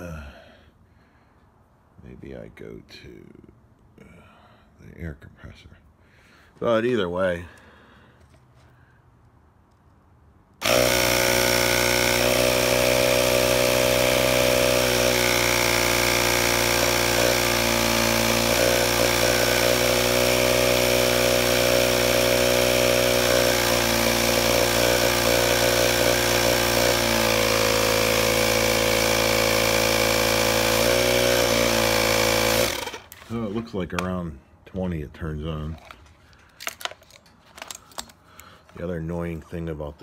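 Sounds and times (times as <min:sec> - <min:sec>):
air compressor motor running: 0:10.6 - 0:33.5.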